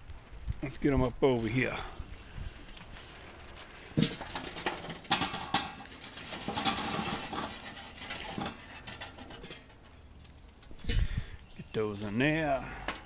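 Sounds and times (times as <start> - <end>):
charcoal clinking on metal: 4.0 - 10.8.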